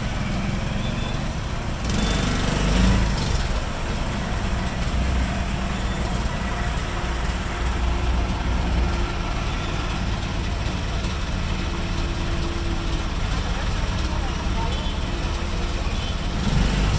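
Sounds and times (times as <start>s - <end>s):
small engine running: 0.0s - 4.0s
street traffic noise: 0.0s - 16.9s.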